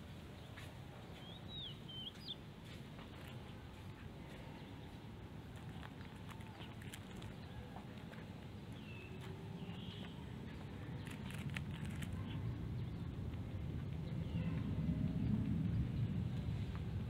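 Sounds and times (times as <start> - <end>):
bird chirps: 1.2 - 2.4, 8.7 - 13.1
cat chewing: 5.3 - 12.5
low rumble: 8.4 - 17.0.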